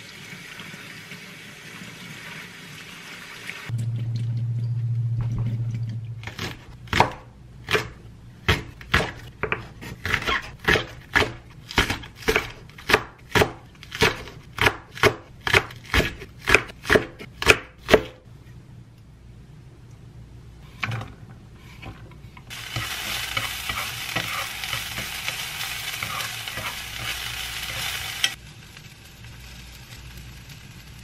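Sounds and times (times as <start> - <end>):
low steady hum: 3.7 - 10.0, 17.0 - 31.0
knife chopping on wooden board: 6.4 - 18.2.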